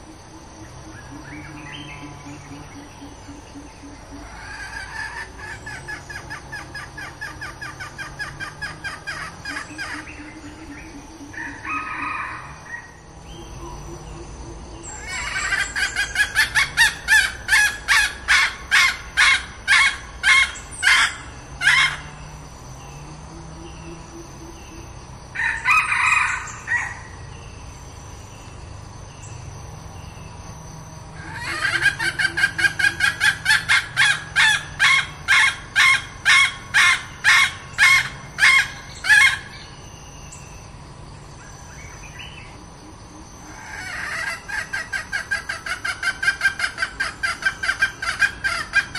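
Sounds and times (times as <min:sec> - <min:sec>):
hen cackling: 0:01.2 - 0:12.9, 0:14.8 - 0:22.2, 0:31.2 - 0:39.5, 0:43.4 - 0:48.9.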